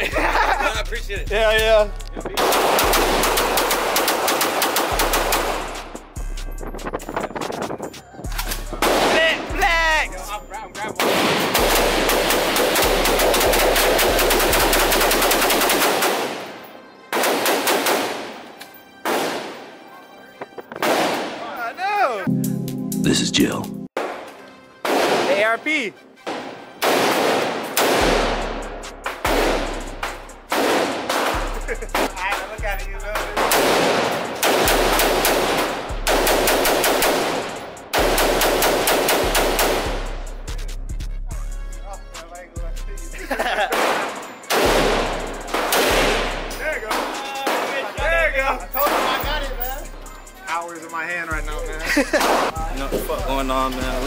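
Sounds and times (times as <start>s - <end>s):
rapid gunfire: 2.4s - 5.8s, 11.0s - 16.4s, 17.1s - 18.2s, 26.8s - 32.2s, 33.2s - 40.1s, 43.7s - 46.4s.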